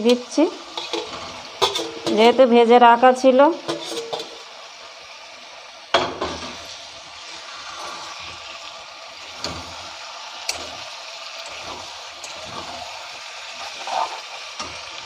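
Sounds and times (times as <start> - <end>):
spatula scraping metal pan: 0.0 - 2.4, 3.6 - 4.4, 6.2 - 9.9, 11.4 - 14.9
chicken sizzling in oil: 0.0 - 15.0.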